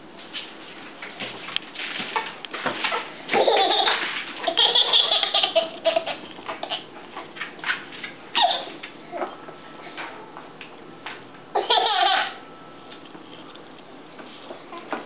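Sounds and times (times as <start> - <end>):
baby laughing: 3.3 - 6.9, 8.4 - 8.8, 11.5 - 12.4.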